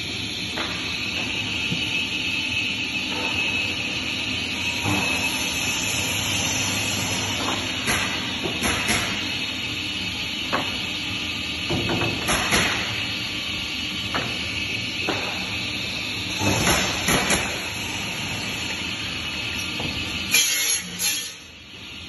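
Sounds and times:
saw hissing and humming: 0:00.0 - 0:10.4.

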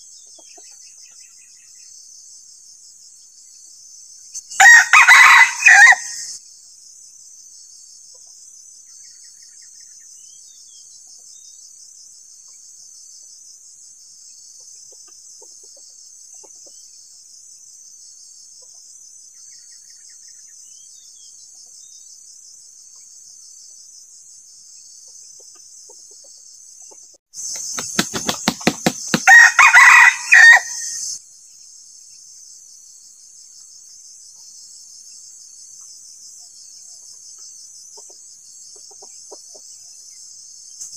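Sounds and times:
high insect trill: 0:00.0 - 0:40.9
rooster crowing: 0:04.6 - 0:06.3, 0:29.2 - 0:31.1.

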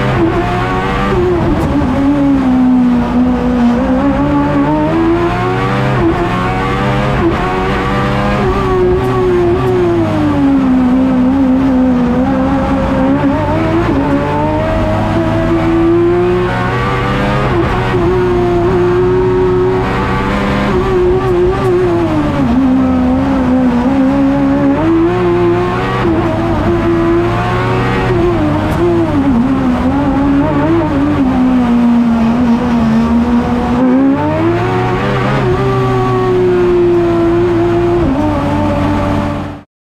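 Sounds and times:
race car engine revving: 0:00.0 - 0:39.7.

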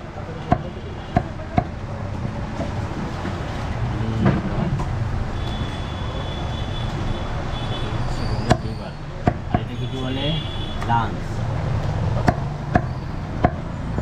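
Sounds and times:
cleaver knocking on chopping block: 0:09.2 - 0:09.7, 0:12.2 - 0:13.6.

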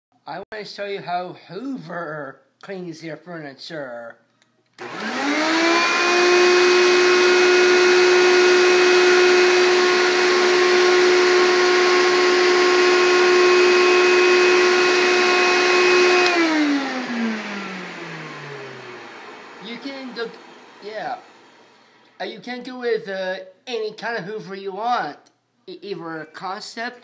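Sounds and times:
vacuum cleaner running: 0:04.8 - 0:22.2.

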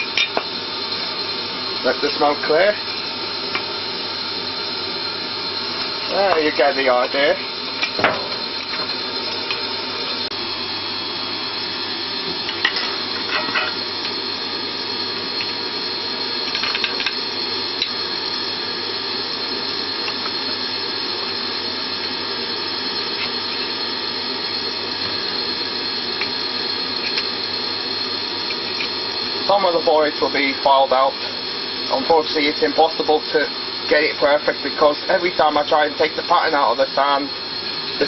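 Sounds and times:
extractor fan whine: 0:00.0 - 0:38.0
steel tools knocking and scraping: 0:12.5 - 0:13.8.

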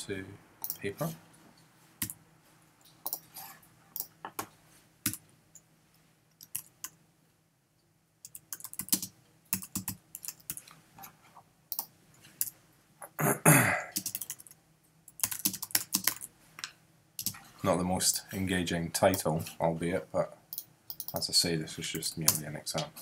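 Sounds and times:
computer keyboard typing: 0:03.0 - 0:03.3, 0:06.4 - 0:07.0, 0:08.2 - 0:10.7, 0:11.7 - 0:12.5, 0:14.0 - 0:16.3, 0:17.2 - 0:17.4, 0:20.5 - 0:21.2.

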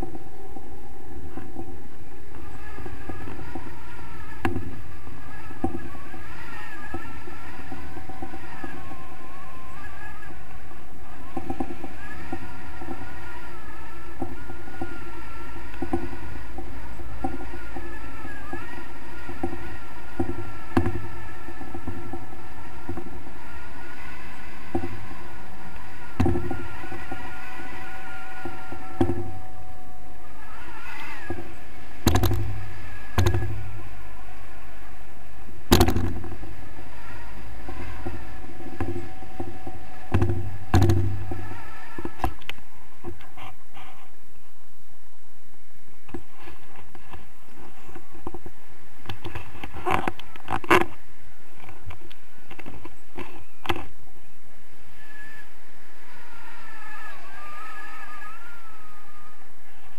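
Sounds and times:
sharp knocks: 0:15.8 - 0:23.2, 0:31.2 - 0:33.7, 0:35.7 - 0:36.4, 0:38.8 - 0:42.3.

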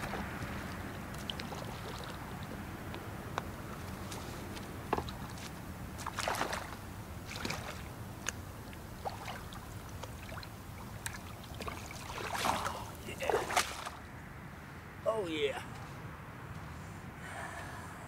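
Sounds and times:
water splashing: 0:00.0 - 0:14.0
low steady rumble: 0:00.0 - 0:18.0.

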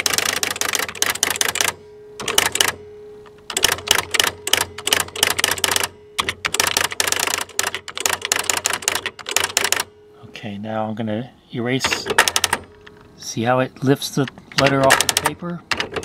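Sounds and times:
electronic typewriter strikes: 0:00.0 - 0:09.9, 0:11.8 - 0:13.0, 0:14.6 - 0:16.0
faint steady machine tone: 0:00.0 - 0:15.9.

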